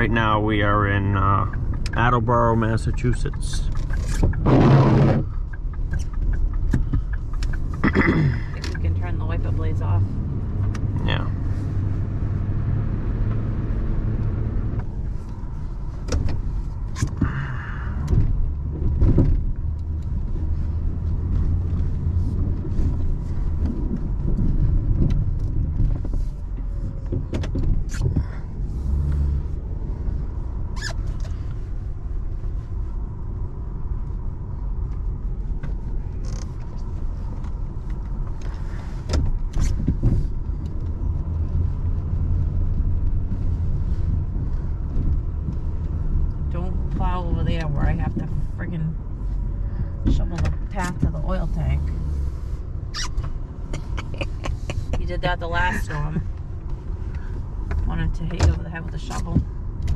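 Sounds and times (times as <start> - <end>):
scattered knocks and clicks: 5.3 - 8.0.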